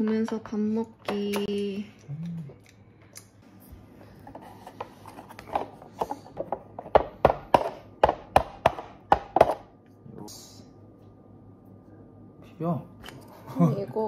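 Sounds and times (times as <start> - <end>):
chopsticks knocking on cups: 6.3 - 9.7.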